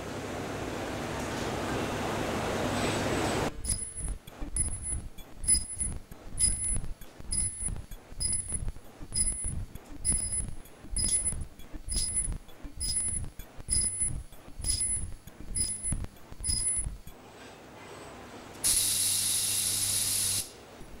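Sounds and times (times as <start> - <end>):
steady hiss with high whine: 18.6 - 21.0.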